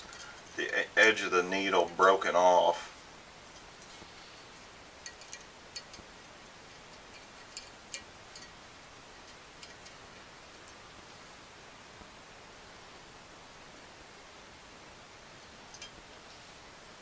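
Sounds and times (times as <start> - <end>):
low hiss: 0.0 - 17.0
small metallic clicks: 5.0 - 6.1, 6.7 - 8.6, 9.2 - 10.8.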